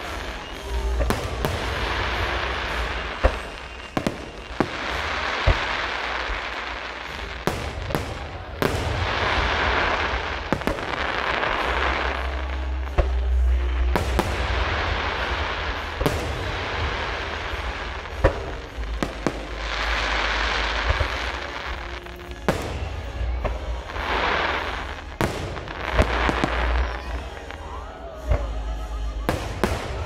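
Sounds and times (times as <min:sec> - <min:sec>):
firework shells booming: 0:00.0 - 0:27.5
crackling firework hiss: 0:00.0 - 0:30.0.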